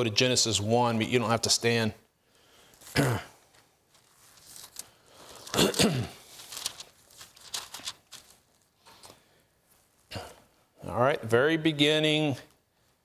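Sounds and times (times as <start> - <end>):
soft paper rustling: 2.7 - 10.1
pages flipping: 2.8 - 9.2.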